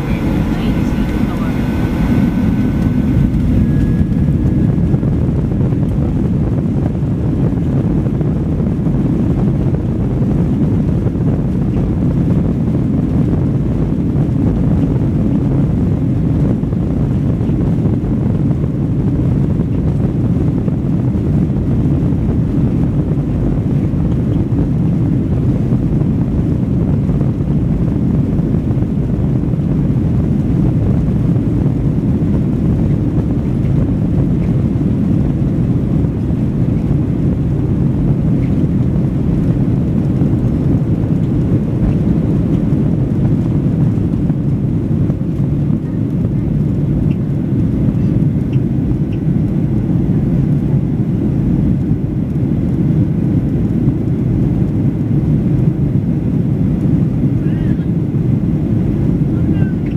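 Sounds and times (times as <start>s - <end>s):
airliner cabin engine rumble: 0.0s - 59.9s.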